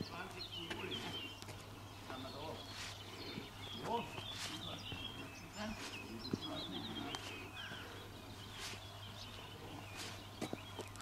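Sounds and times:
birds chirping and trilling: 0.0 - 11.0.

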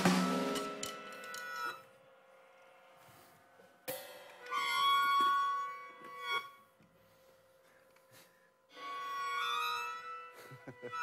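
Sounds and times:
light drum kit strokes: 0.0 - 1.3
melodica chord: 4.4 - 6.7, 8.7 - 11.0.

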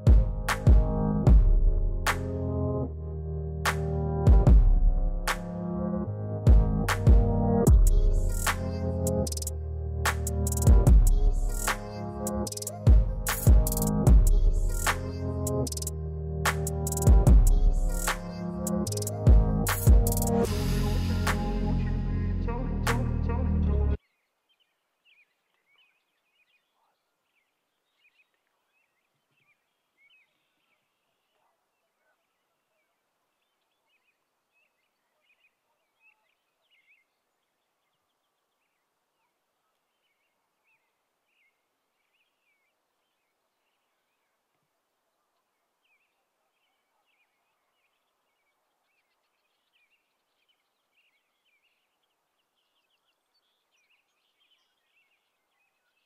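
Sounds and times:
small birds chirping: 7.7 - 9.5, 10.2 - 15.9, 16.6 - 20.5, 24.0 - 44.5, 45.2 - 56.0.

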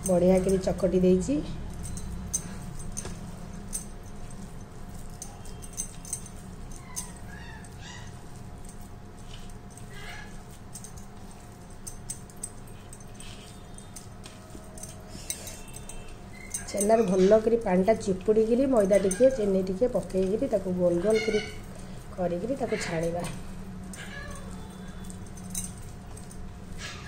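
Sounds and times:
hand kneading dough on steel: 0.0 - 27.0
steady low hum: 0.0 - 27.0.

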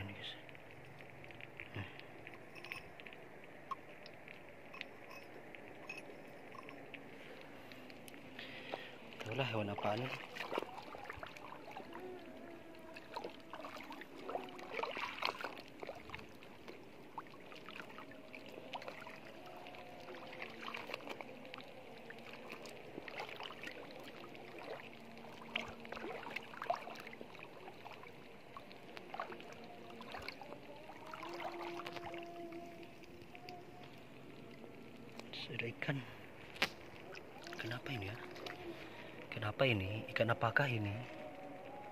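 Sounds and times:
feet wading through water: 0.0 - 35.3, 35.9 - 41.9.

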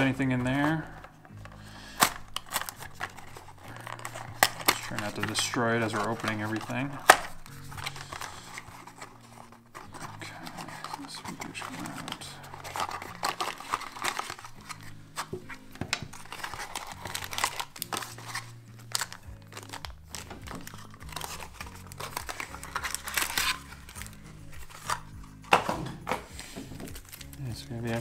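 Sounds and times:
background music with low bass: 0.0 - 28.0
plastic and cardboard packaging crinkling: 0.0 - 28.0.

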